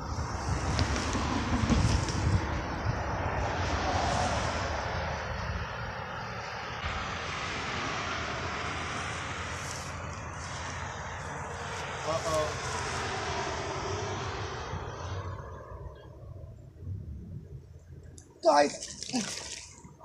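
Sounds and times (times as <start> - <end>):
distant engine drone: 0.0 - 20.0.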